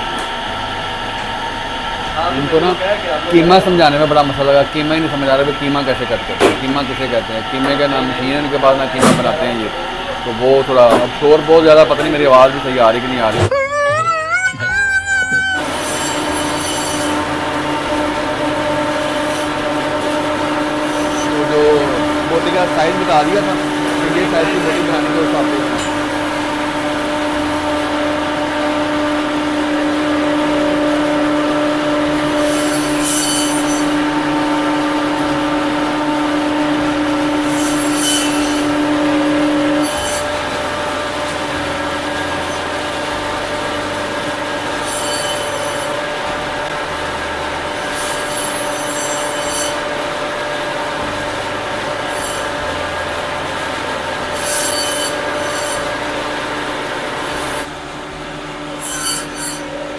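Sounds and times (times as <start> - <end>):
band saw running: 0.0 - 59.9
blade screeching through bone: 13.4 - 17.2, 37.4 - 38.6, 58.8 - 59.7.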